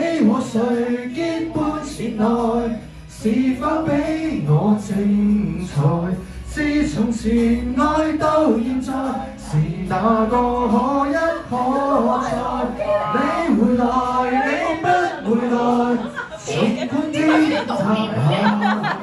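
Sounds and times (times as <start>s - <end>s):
backing track music: 0.0s - 19.0s
man singing karaoke: 0.0s - 19.0s.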